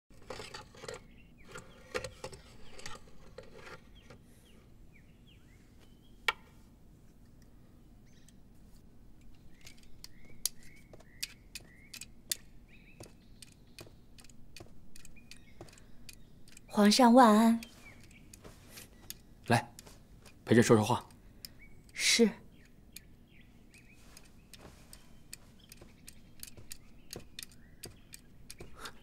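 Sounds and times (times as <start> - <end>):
faint bird chirps: 8.0 - 8.4, 9.2 - 19.8, 20.5 - 29.0
metallic clicks of clock movement: 9.2 - 16.7, 23.7 - 28.7.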